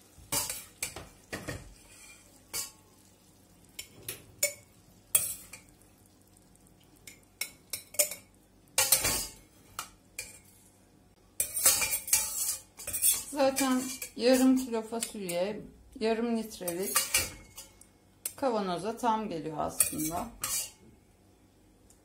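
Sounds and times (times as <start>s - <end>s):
metal spoon scraping a pot: 0.3s - 2.8s, 11.4s - 15.3s, 16.7s - 17.7s, 19.7s - 20.8s.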